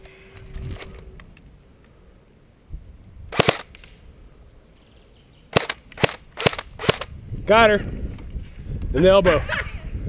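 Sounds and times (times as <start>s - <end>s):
airsoft rifle shots cracking: 3.3s - 4.0s, 5.5s - 7.1s.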